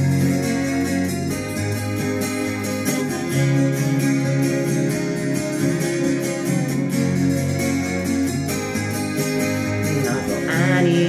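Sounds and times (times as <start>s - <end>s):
acoustic guitar strumming: 0.0s - 11.0s
person singing: 9.9s - 11.0s.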